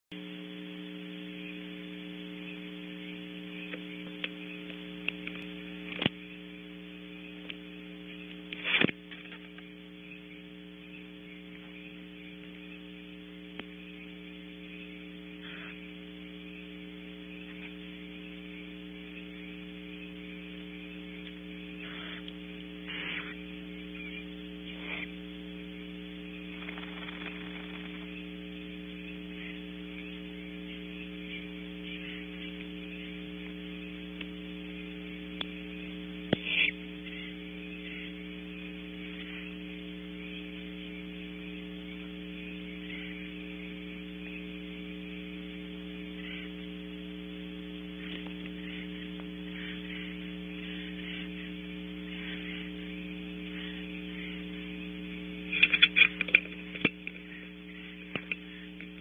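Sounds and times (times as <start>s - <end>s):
electrical hum with faint buzz: 0.1s - 59.0s
faint rasping noises: 11.4s - 43.9s, 45.4s - 59.0s.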